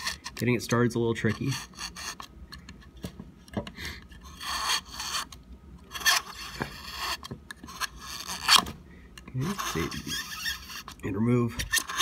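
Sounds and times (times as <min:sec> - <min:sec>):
blade scraping glass: 0:00.0 - 0:00.3, 0:04.2 - 0:08.6, 0:09.4 - 0:11.0.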